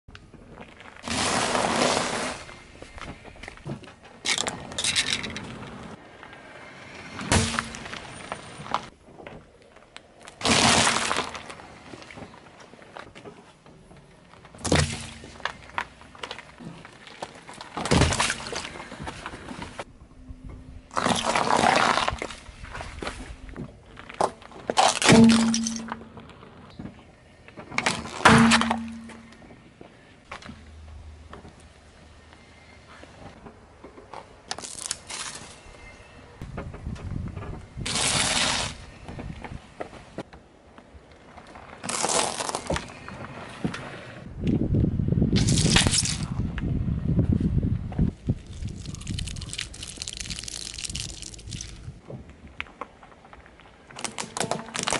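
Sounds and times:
tyre crushing brittle objects: 10.2s - 12.2s, 14.4s - 19.1s, 20.9s - 22.5s, 23.9s - 26.1s, 34.5s - 35.6s, 41.8s - 43.1s, 45.4s - 46.4s, 48.4s - 51.9s, 53.8s - 54.9s.

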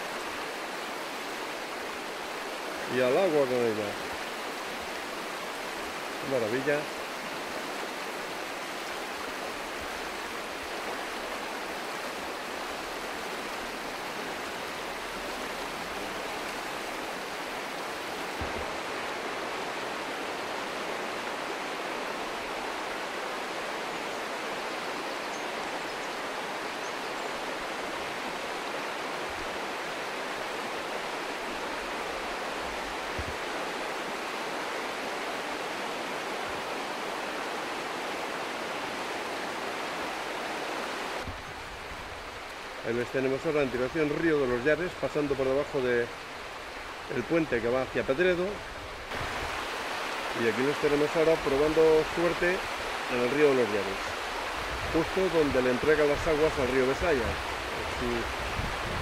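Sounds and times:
stream water rushing: 0.0s - 59.0s
faint low bumps: 18.2s - 19.2s.

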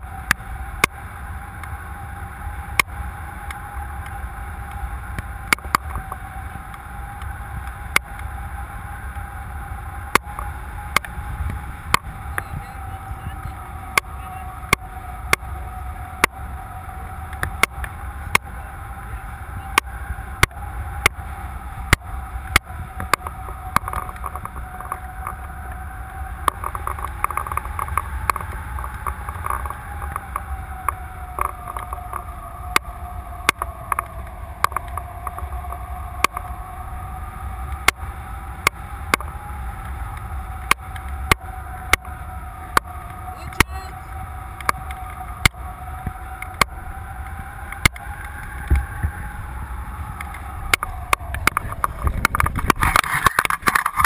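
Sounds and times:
low rumble: 0.0s - 54.0s
wavering tone: 0.0s - 54.0s
wind rushing over camera: 0.0s - 54.0s.

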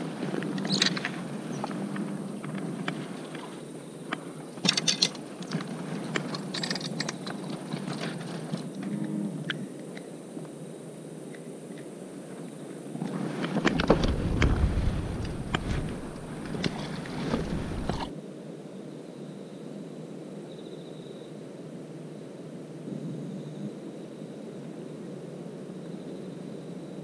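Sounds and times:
faint steady hum: 0.0s - 27.0s
camera handling rumble: 13.1s - 18.1s.

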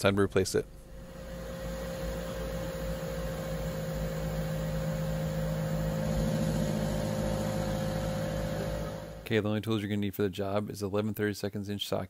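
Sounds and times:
blower fan motor humming: 0.7s - 9.3s.

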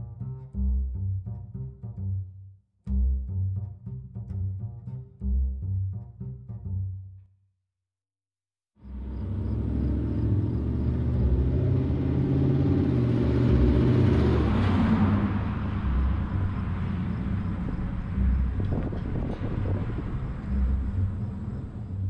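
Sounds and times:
vehicle engine driving by: 8.8s - 22.0s.

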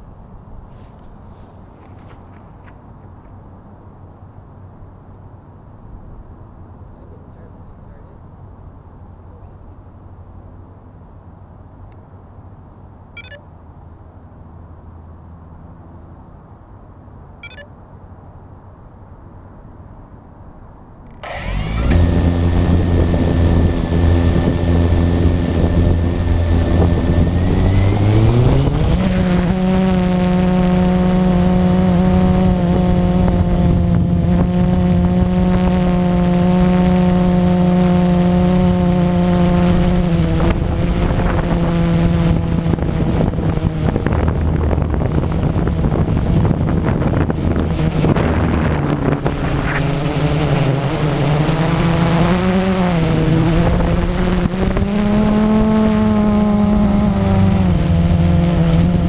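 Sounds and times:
drone motors buzzing: 21.1s - 59.0s.

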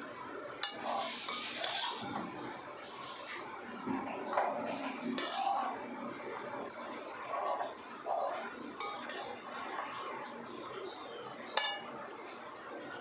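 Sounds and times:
metal clinks against the pan: 0.4s - 2.0s, 7.5s - 9.5s, 11.0s - 13.0s
spatula scraping a pan: 0.6s - 3.5s, 4.2s - 5.8s, 7.0s - 9.6s, 11.6s - 12.5s.

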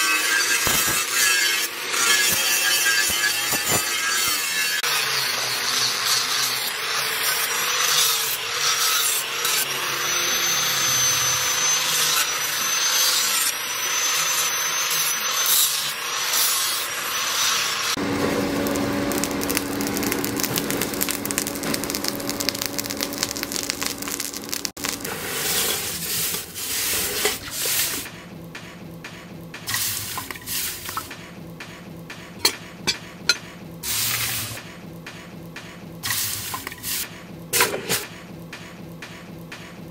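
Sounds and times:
angle grinder grinding steel: 0.0s - 28.1s
forge low hum: 17.8s - 39.9s.

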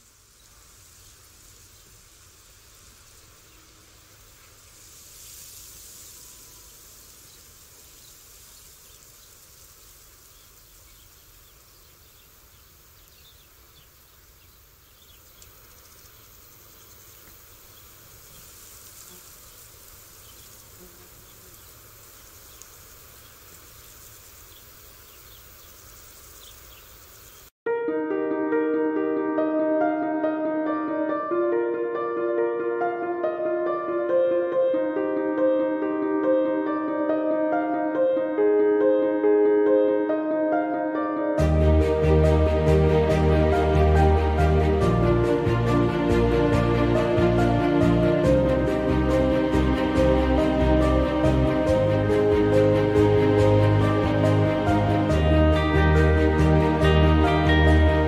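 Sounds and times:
insect buzz: 0.0s - 27.5s.

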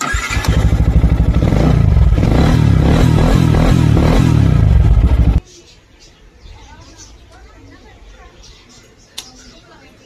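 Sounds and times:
motorcycle engine running: 0.0s - 5.4s.

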